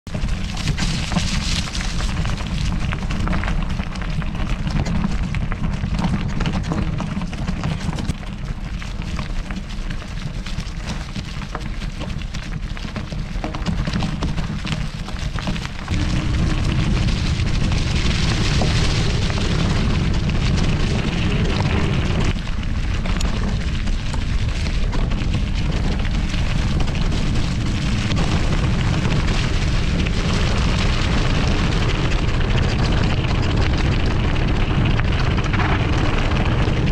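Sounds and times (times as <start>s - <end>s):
bike tyres rolling over gravel: 0.1s - 36.9s
wind buffeting microphone: 11.4s - 36.9s.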